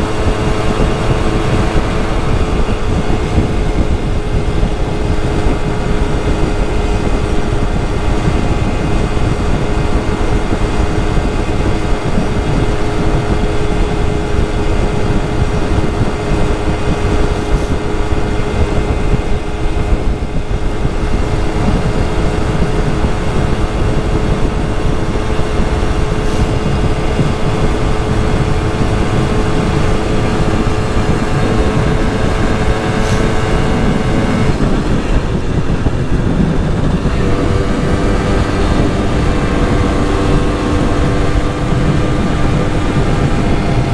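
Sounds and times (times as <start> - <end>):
moped engine running: 0.0 - 43.9.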